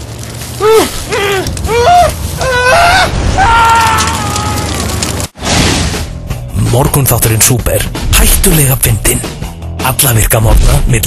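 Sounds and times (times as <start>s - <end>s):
person screaming: 0.6s - 4.8s.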